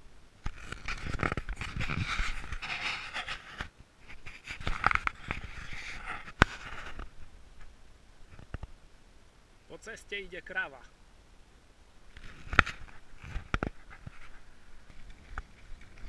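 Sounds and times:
camera rubbing on windbreaker: 0.4s - 7.3s, 12.2s - 16.0s.

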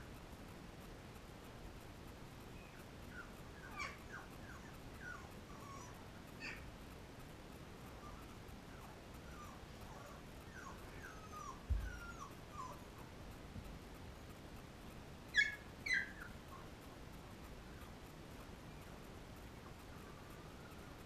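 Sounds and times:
puppies whimpering: 2.6s - 6.7s, 7.8s - 13.1s, 15.3s - 16.7s
soft low thump: 11.7s - 11.9s.

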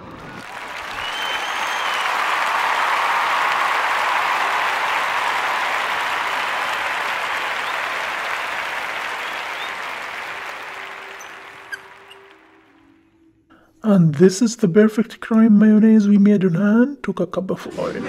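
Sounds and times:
audience applause: 0.0s - 12.7s.

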